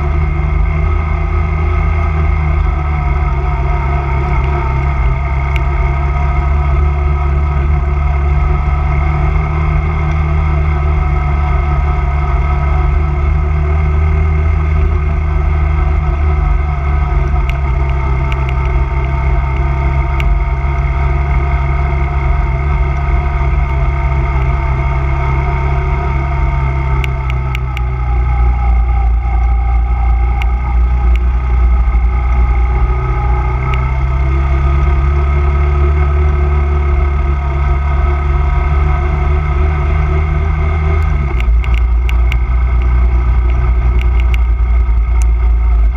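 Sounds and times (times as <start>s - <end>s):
quad bike engine running: 0.0s - 45.9s
faint ticks and clicks: 17.3s - 20.9s, 27.0s - 27.9s, 41.0s - 45.5s.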